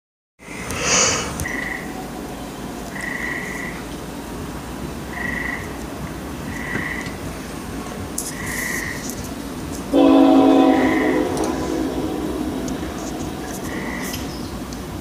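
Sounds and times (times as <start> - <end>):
distant freight train rumble: 1.3 - 15.0
frog calls: 2.9 - 3.8, 5.1 - 5.8, 6.5 - 7.2, 10.8 - 14.5.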